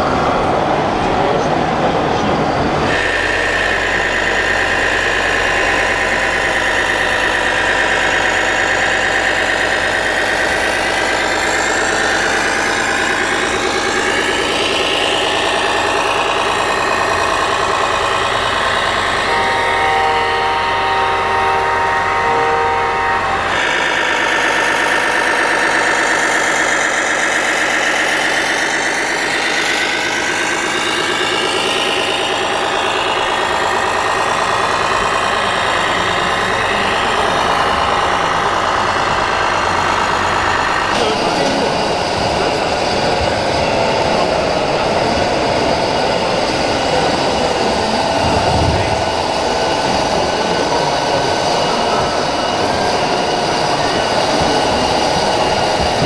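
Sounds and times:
rc model motor whine: 2.9s - 41.0s
multi-tone horn: 19.0s - 24.2s, 48.0s - 49.2s.

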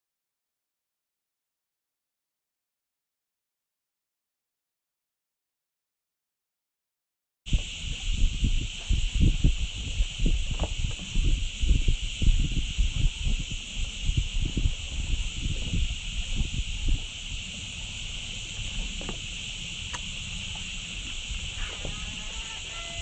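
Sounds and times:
cicadas chorus: 7.5s - 23.0s
wind buffeting microphone: 7.5s - 23.0s.

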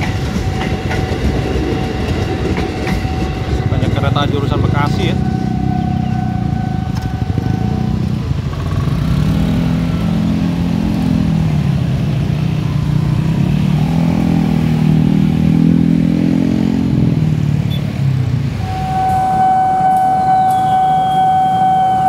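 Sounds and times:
motorcycle engines revving: 3.7s - 22.0s
steady electronic tone: 18.6s - 22.0s.

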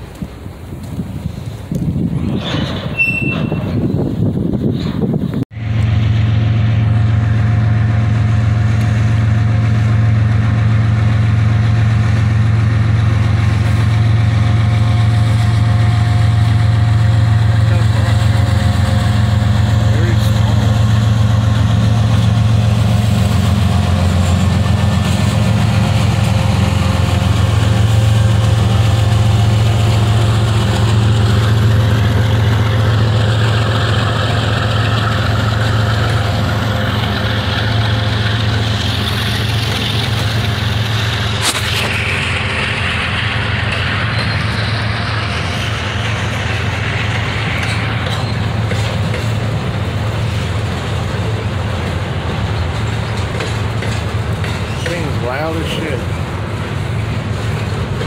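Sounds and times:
diesel locomotive drone: 0.0s - 58.0s
freight cars rumbling on rails: 0.0s - 58.0s
sharp clack: 41.4s - 42.4s.

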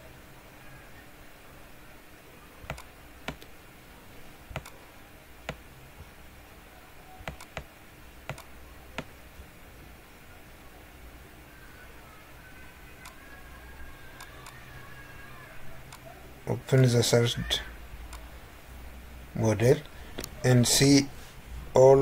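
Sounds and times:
faint steady hum: 0.0s - 22.0s
computer mouse clicks: 2.7s - 3.5s, 4.5s - 4.8s, 7.2s - 9.1s, 14.2s - 14.6s, 15.9s - 16.1s.

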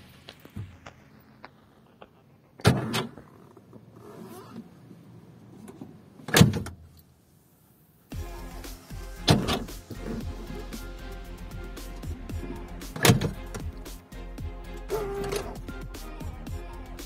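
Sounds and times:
electric door lock clunks: 13.0s - 13.7s.

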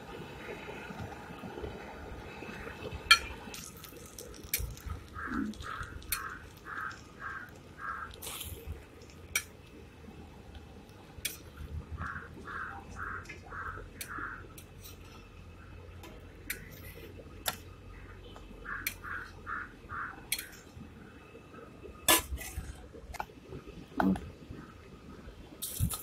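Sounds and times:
crow cawing: 5.2s - 8.2s, 12.0s - 14.5s, 18.7s - 20.2s.

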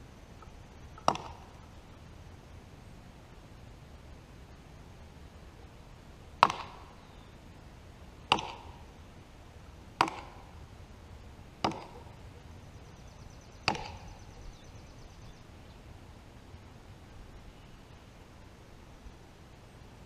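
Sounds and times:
axe chopping into tree trunk: 1.0s - 1.5s, 6.4s - 6.8s, 8.3s - 8.7s, 10.0s - 10.5s, 11.6s - 12.0s, 13.7s - 14.0s.

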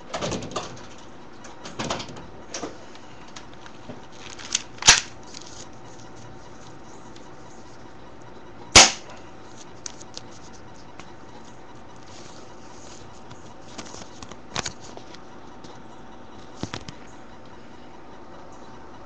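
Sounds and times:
airsoft pistol shot: 8.8s - 9.1s.

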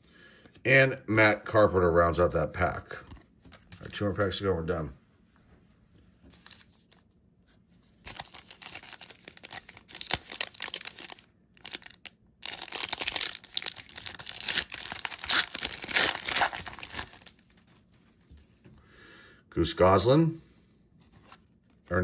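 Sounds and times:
foil wrapper crinkling and tearing: 8.0s - 17.8s.

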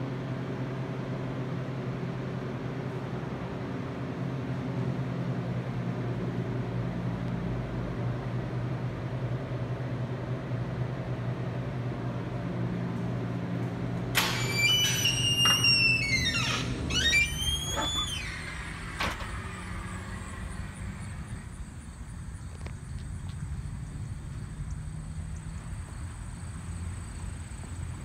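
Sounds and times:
door squealing on hinges: 14.2s - 20.5s.

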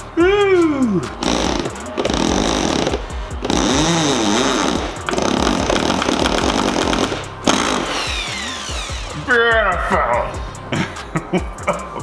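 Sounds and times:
power drill driving screws: 1.2s - 9.2s.

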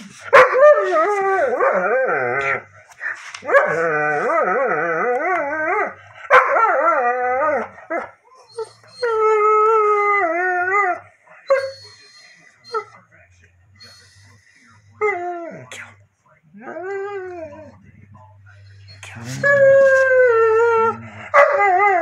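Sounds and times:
dog howling: 0.4s - 2.6s, 3.4s - 11.8s, 16.6s - 17.8s, 19.2s - 22.0s.

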